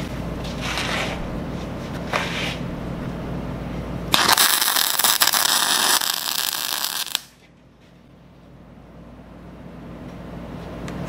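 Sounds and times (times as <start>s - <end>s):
welding arc hissing: 4.1s - 7.4s.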